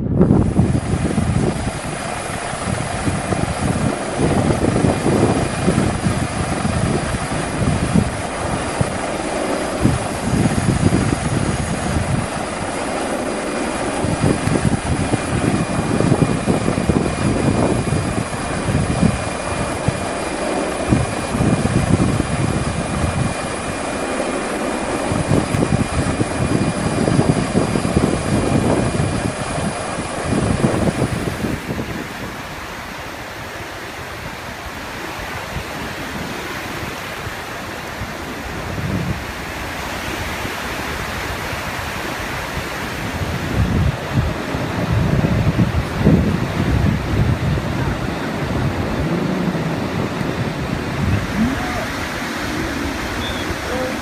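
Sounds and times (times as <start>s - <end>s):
heavy surf rushing: 0.0s - 54.0s
wind gusting on microphone: 0.0s - 54.0s
engine hum: 47.8s - 54.0s
faint high whine: 47.8s - 54.0s.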